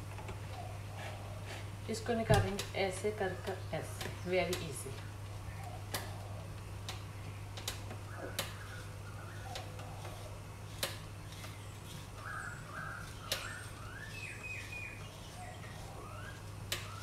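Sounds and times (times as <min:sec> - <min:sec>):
steady low hum: 0:00.0 - 0:17.0
bird chirps: 0:11.4 - 0:17.0.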